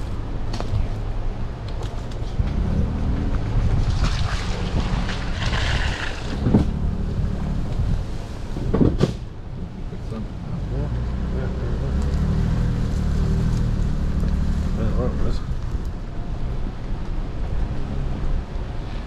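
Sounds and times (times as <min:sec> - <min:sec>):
engine and tyre rumble: 0:00.0 - 0:19.0
wind buffeting microphone: 0:02.0 - 0:09.5.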